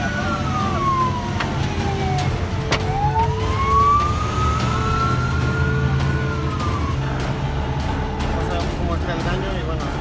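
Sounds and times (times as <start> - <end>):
siren wailing: 0.0 - 7.1.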